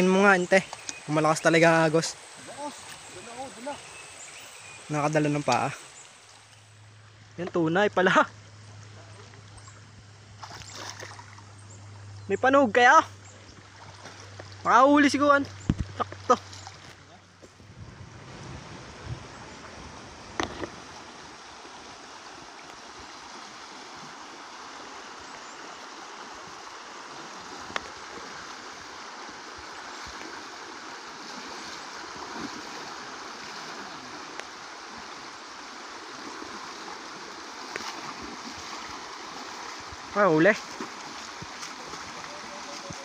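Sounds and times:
river rushing: 0.0 - 8.9, 17.9 - 43.0.

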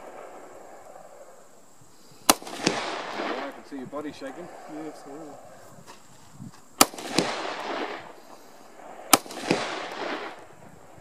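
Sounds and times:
rifle shots with echo: 2.2 - 5.5, 6.8 - 11.0.

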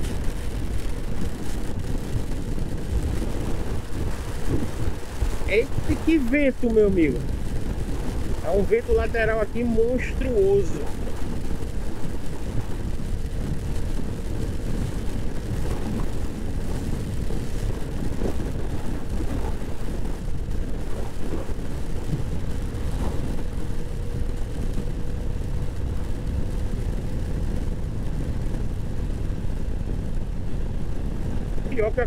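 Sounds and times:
wind buffeting microphone: 0.0 - 32.0
scooter engine hum: 9.4 - 31.7.

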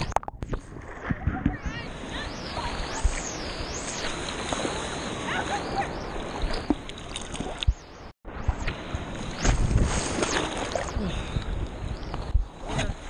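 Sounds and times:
small splashes and knocks: 6.5 - 7.7.

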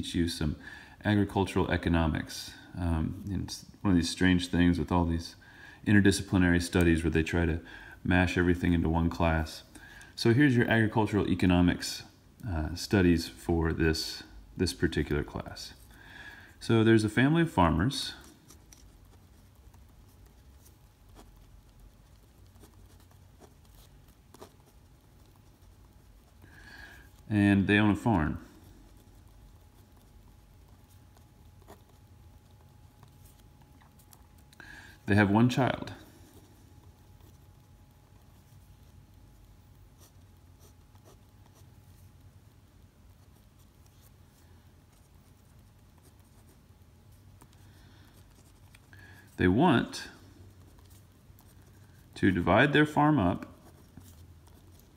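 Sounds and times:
low steady hum: 0.0 - 54.9
pen scratching on paper: 18.2 - 34.5, 36.4 - 42.3.

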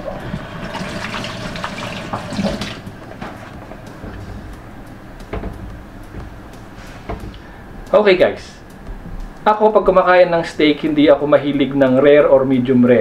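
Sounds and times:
water running: 0.0 - 12.2
light knocks: 5.2 - 7.4.

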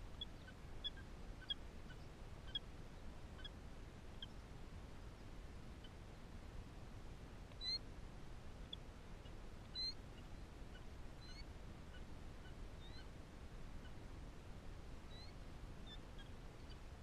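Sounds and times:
faint high bird chirps: 7.5 - 7.8, 9.6 - 13.1, 15.1 - 16.9.

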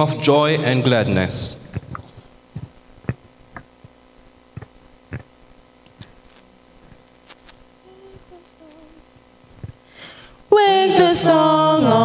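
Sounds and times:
faint hum: 0.0 - 12.0
microphone handling thumps: 1.6 - 8.8, 9.5 - 9.9
faint held tone: 7.8 - 10.0.

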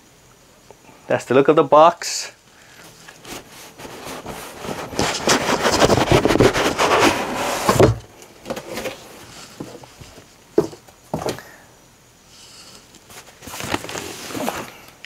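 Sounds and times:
cardboard scraping on cardboard: 2.8 - 9.8, 13.1 - 14.8
box thump: 7.6 - 9.0.

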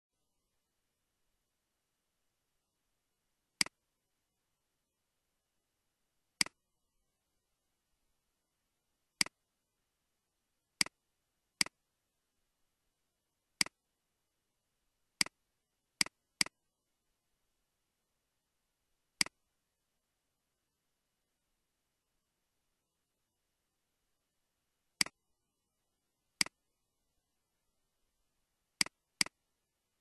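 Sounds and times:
computer mouse clicks: 3.6 - 3.8, 6.4 - 6.6, 9.2 - 9.4, 10.8 - 11.0, 13.6 - 13.8, 15.2 - 15.4, 16.0 - 16.6, 19.2 - 19.4, 25.0 - 25.2, 26.4 - 26.6, 28.8 - 29.4.

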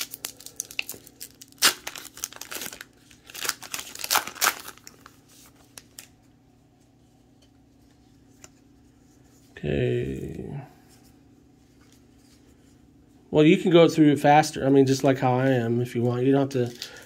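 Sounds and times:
wrapper being torn open: 0.0 - 6.1.

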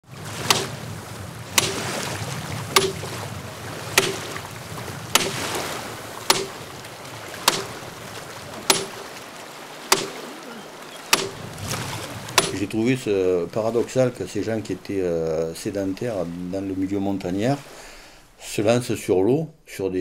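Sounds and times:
flowing river water: 0.0 - 19.1
sharp ringing knocks: 2.8 - 3.1, 4.0 - 4.3, 8.7 - 9.0, 12.4 - 12.7.

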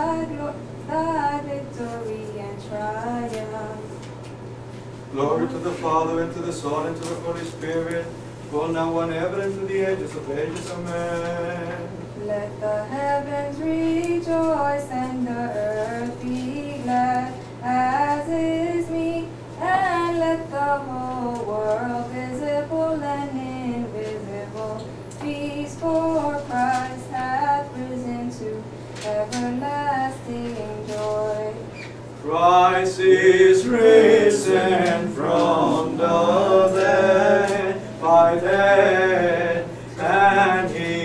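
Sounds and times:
steady low hum: 0.0 - 41.0
woman chanting a hymn: 12.2 - 41.0.

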